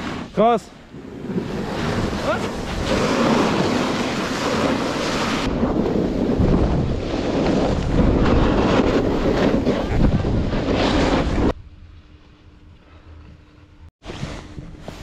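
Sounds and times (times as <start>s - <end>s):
snowboards scraping packed snow: 0.0s - 11.6s, 14.0s - 15.0s
wind rushing over microphone: 0.0s - 11.7s
faint hum: 11.6s - 15.0s.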